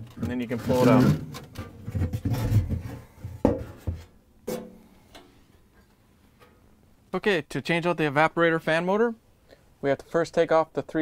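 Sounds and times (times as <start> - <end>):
plastic panel rubbing and bumping: 0.0 - 4.6.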